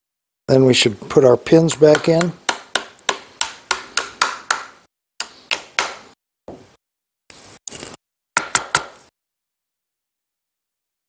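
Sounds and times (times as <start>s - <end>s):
wooden mallet knocking on metal: 1.8s - 4.7s.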